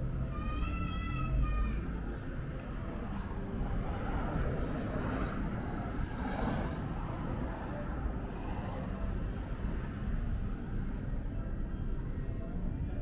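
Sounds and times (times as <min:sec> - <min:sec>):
low rumble of road traffic: 0:00.0 - 0:13.0
vehicle passing: 0:01.8 - 0:11.6.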